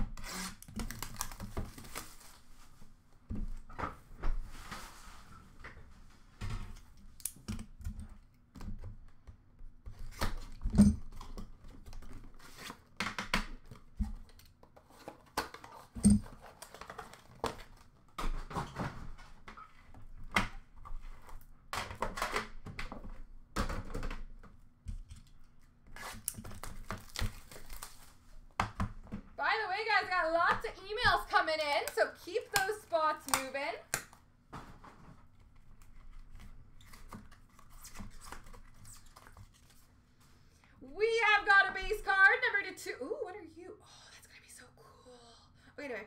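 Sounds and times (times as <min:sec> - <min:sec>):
packaging rustling: 0:26.0 - 0:28.5.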